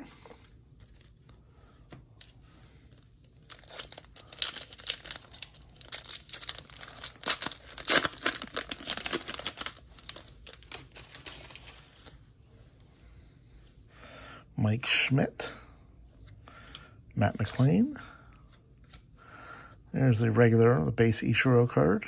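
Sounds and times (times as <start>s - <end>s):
foil wrapper tearing and crinkling: 3.4s - 11.8s.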